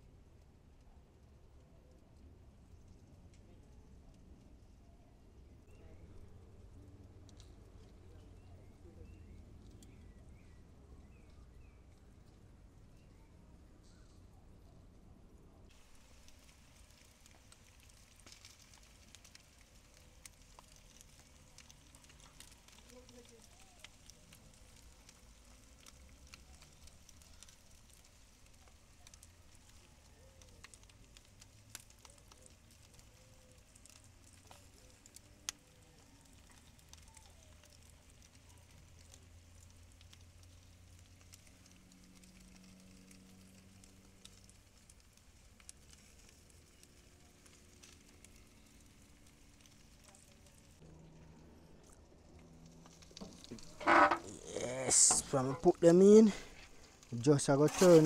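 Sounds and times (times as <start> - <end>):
wood fire crackling: 0.0 - 58.0
small pops: 15.8 - 50.8, 51.8 - 58.0.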